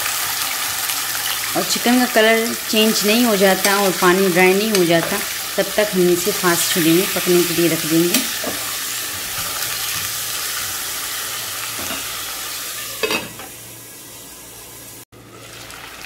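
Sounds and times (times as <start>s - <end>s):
chicken sizzling in hot oil: 0.0s - 16.0s
metal lid clanking: 13.0s - 13.6s.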